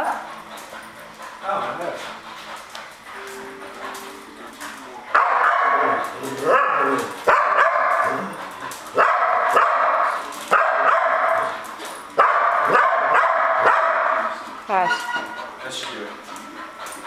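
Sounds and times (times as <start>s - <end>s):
dog barking and crying: 5.1s - 8.4s, 9.0s - 11.5s, 12.1s - 14.4s.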